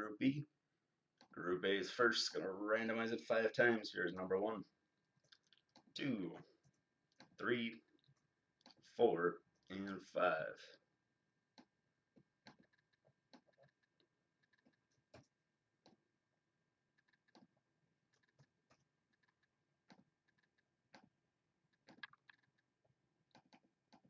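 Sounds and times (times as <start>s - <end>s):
computer mouse and keyboard clicks: 5.2s - 6.0s, 12.4s - 16.0s, 16.9s - 24.0s.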